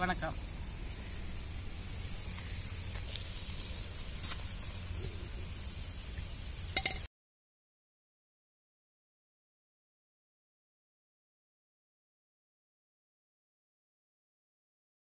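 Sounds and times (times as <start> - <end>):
background hiss and rumble: 0.0 - 7.1.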